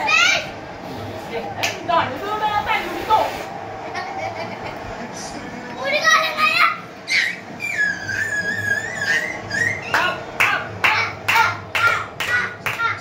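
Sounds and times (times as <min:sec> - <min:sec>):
rhythmic hand clapping: 0:09.6 - 0:13.0.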